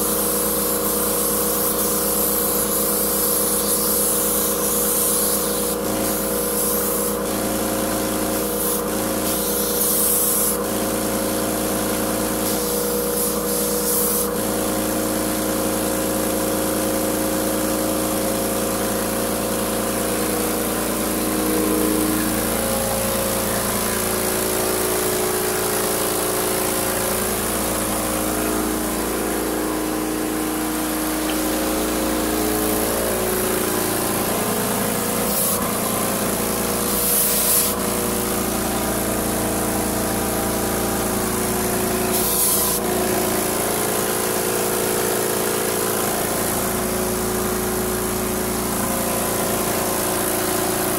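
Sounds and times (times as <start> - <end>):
spray gun hissing: 0.0 - 16.8, 17.5 - 47.1
paint sprayer pump humming: 0.0 - 50.9.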